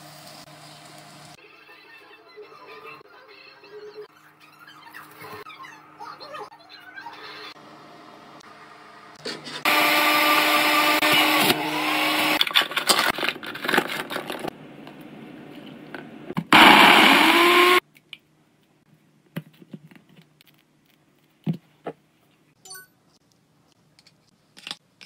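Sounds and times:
electric juicer motor running: 0:09.6 - 0:12.5, 0:16.5 - 0:17.8
blender whining: 0:09.6 - 0:13.1, 0:16.5 - 0:17.8.

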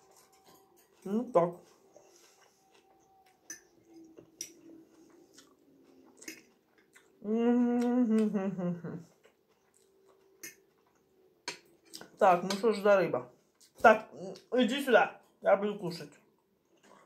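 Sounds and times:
chewing: 0:00.0 - 0:12.2, 0:13.5 - 0:14.6, 0:16.1 - 0:17.0
woman humming while eating: 0:07.2 - 0:09.2.

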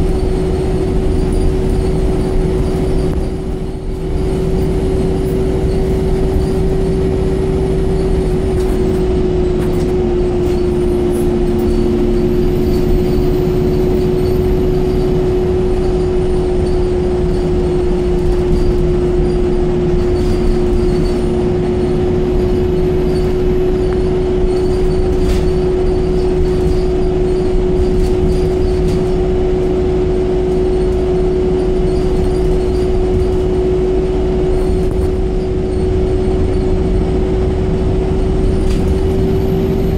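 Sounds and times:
bus engine and road noise: 0:00.0 - 0:39.9
constant whine: 0:00.0 - 0:39.9.

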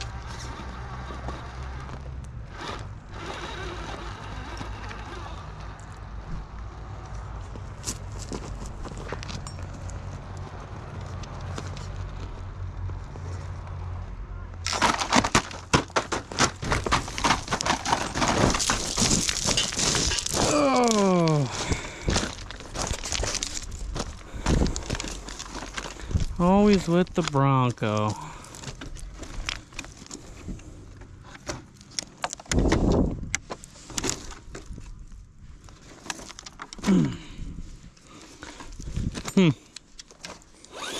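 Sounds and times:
rc truck clattering over rocks: 0:00.0 - 0:06.0, 0:14.6 - 0:30.6
tires crunching over stones: 0:00.0 - 0:40.9.

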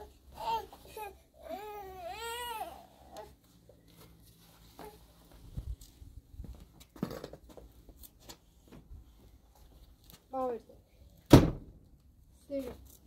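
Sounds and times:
toddler whimpering: 0:00.0 - 0:03.4
footsteps and shuffles: 0:02.7 - 0:10.4.

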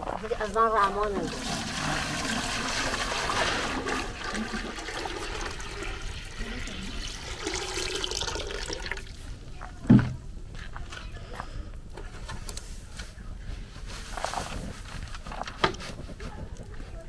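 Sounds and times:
water pouring into metal tin: 0:01.2 - 0:09.2.

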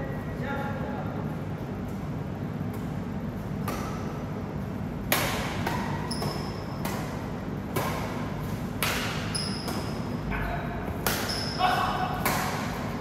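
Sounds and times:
racket hitting shuttlecock: 0:03.6 - 0:04.2, 0:05.0 - 0:10.2, 0:10.8 - 0:13.0
shoes squeaking on court: 0:05.9 - 0:06.8, 0:09.2 - 0:10.2, 0:11.1 - 0:11.6.

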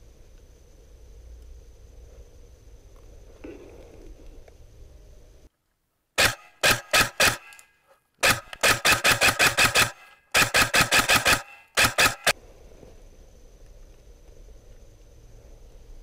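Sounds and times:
airsoft rifle shots: 0:06.2 - 0:07.6, 0:08.2 - 0:12.4.

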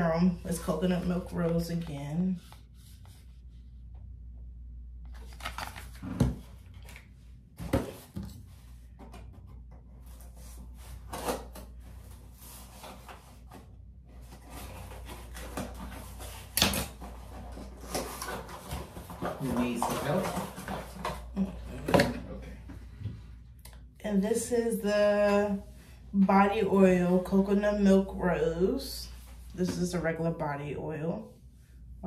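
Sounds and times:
cardboard rustling: 0:09.9 - 0:21.3.

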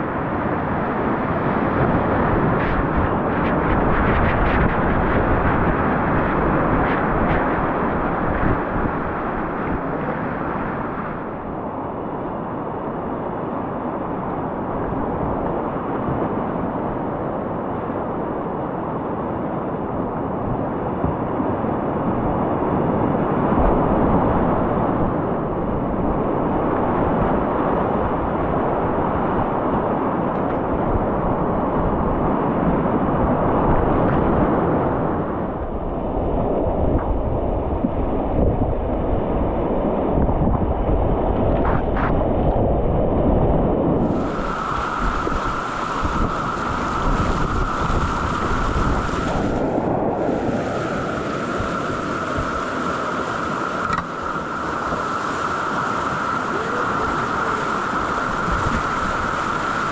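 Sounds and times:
wind buffeting microphone: 0:00.0 - 0:59.9
whitewater rapids rushing: 0:44.0 - 0:59.9.

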